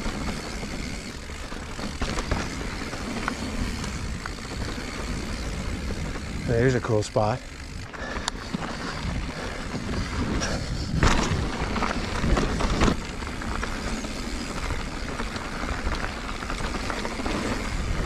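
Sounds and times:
bicycle tyre and drivetrain rattle: 0:00.0 - 0:18.0
wind rush on microphone: 0:08.0 - 0:18.0
bike knocking over bumps: 0:09.9 - 0:13.7.

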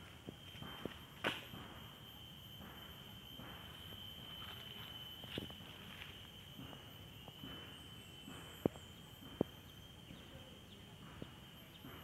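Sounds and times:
high-pitched insect drone: 0:00.0 - 0:12.0.

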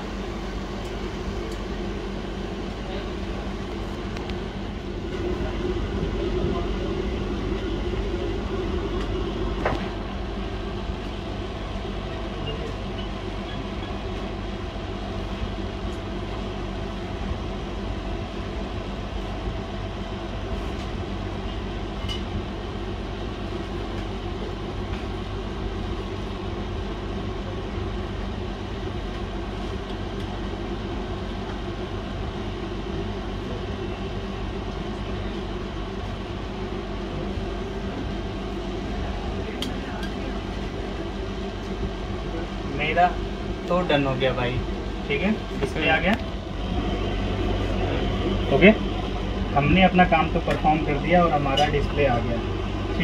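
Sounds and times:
machine hum: 0:00.0 - 0:20.5, 0:35.7 - 0:53.0.

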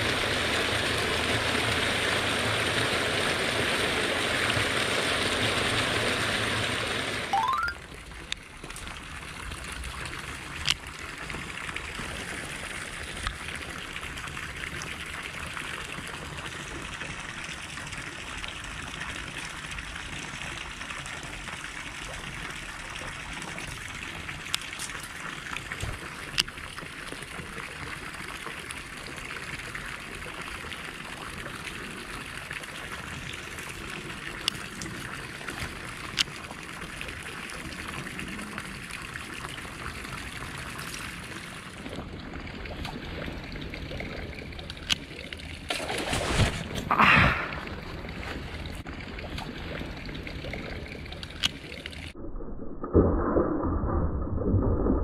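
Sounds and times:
water trickling from a pipe: 0:07.4 - 0:45.7, 0:46.8 - 0:52.2.

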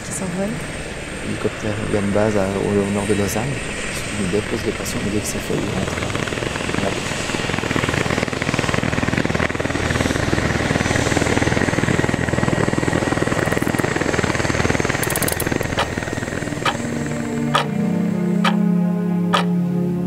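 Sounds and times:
helicopter rotor chopping: 0:00.0 - 0:19.6
low engine hum: 0:00.0 - 0:20.0
music with ticking beats: 0:17.4 - 0:17.8, 0:18.4 - 0:19.6.

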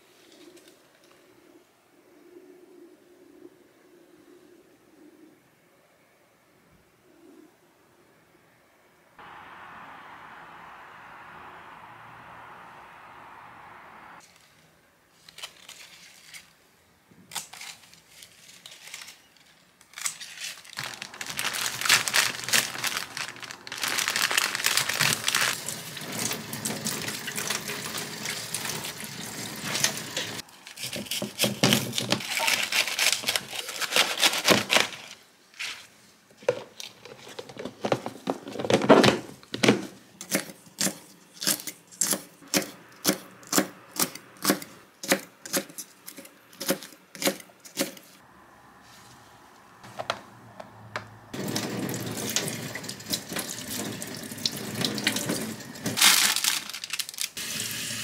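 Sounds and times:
leaves rustling: 0:17.5 - 0:36.2, 0:51.4 - 0:57.9
kitchen tap running: 0:25.5 - 0:30.4, 0:51.4 - 0:56.0, 0:57.4 - 0:58.0
knife chopping on wooden board: 0:42.0 - 0:45.7.

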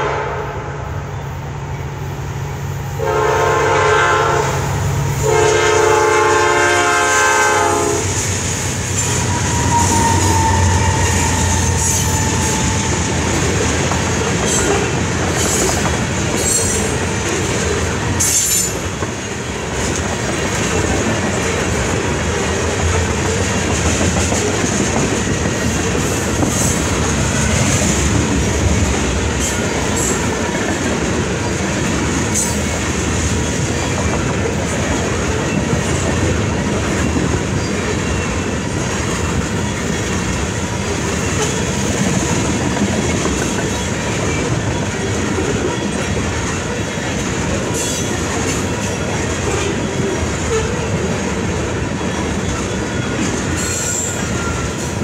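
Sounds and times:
train horn blasts: 0:00.0 - 0:01.1, 0:02.9 - 0:08.2, 0:09.2 - 0:12.9
diesel locomotive engines rumbling: 0:00.0 - 0:55.0
train wheels clickety-clack: 0:05.0 - 0:55.0.

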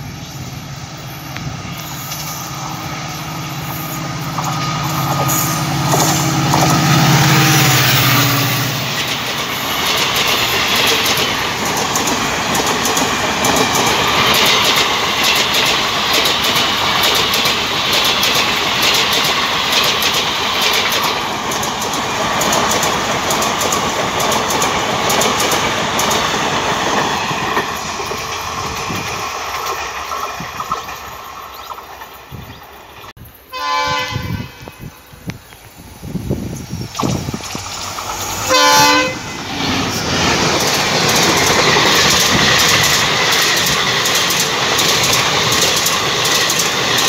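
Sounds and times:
train wheels clattering over rail joints: 0:04.2 - 0:08.0, 0:08.9 - 0:33.1, 0:39.4 - 0:47.0.

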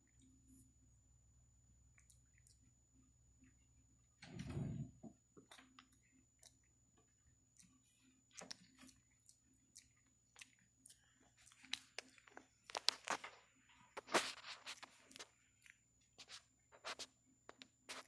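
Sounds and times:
crackles and clicks in hair: 0:10.0 - 0:18.0.

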